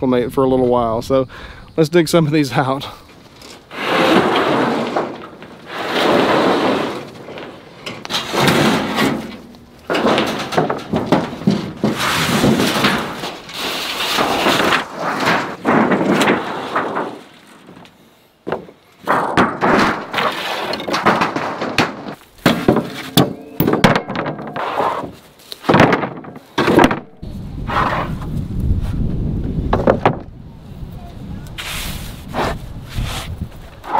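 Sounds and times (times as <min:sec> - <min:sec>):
boards scraping over each other: 0:03.3 - 0:27.0, 0:27.6 - 0:28.4
wooden boards thunking and clattering: 0:03.7 - 0:27.2, 0:29.7 - 0:30.3.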